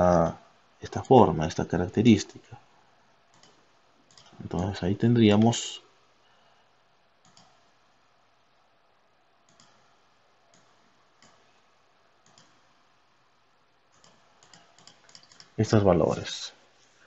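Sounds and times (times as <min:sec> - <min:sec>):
computer mouse clicks: 0:03.3 - 0:04.4, 0:07.2 - 0:07.7, 0:09.5 - 0:09.9, 0:10.5 - 0:11.5, 0:12.2 - 0:12.7, 0:13.9 - 0:16.3.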